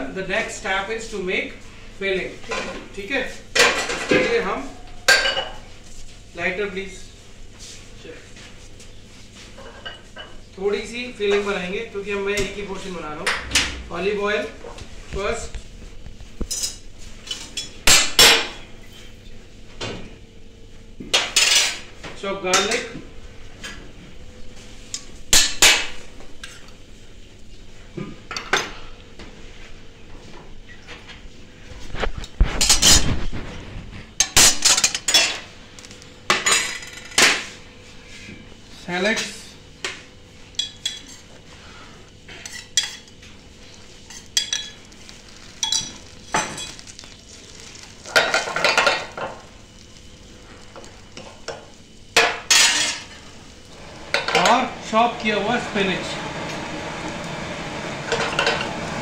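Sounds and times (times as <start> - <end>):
utensils clinking against pan: 34.2 - 35.5, 40.6 - 41.3, 42.3 - 43.2, 44.0 - 44.8, 45.6 - 46.8, 52.2 - 53.2
shallots frying in oil: 42.4 - 59.0.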